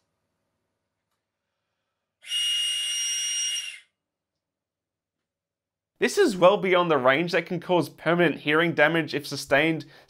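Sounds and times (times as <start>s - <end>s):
high-pitched whistle blast: 2.2s - 4.0s.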